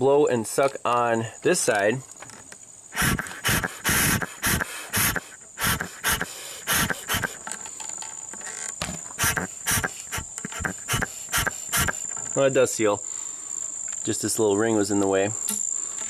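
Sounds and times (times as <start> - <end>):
puffs of breath through a hose: 2.9 - 7.4, 9.2 - 12.1.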